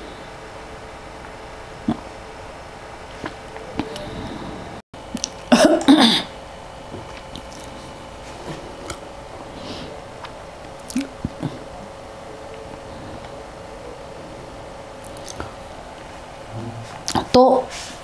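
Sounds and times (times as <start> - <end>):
steady low hum: 0.0 - 18.0
person clearing throat: 5.5 - 6.3.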